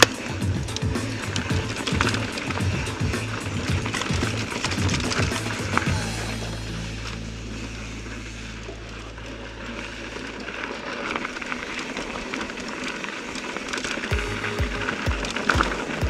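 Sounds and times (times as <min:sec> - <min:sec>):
bike rattles and clicks: 0:00.0 - 0:06.1, 0:07.0 - 0:16.0
background music: 0:00.0 - 0:08.8, 0:14.1 - 0:16.0
bike tyre rumble: 0:00.0 - 0:16.0
wind: 0:00.0 - 0:16.0.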